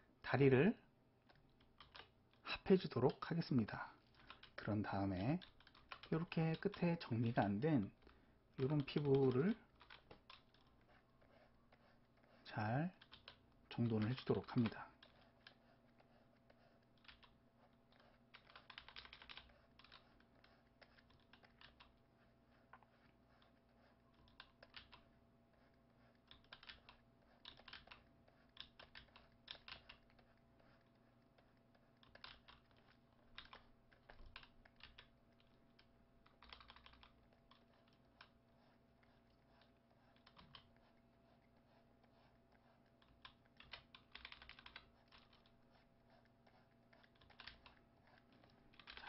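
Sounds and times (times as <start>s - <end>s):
keyboard keys clicking: 18.4s - 20.0s, 36.4s - 37.1s, 43.2s - 45.3s, 48.8s - 49.0s.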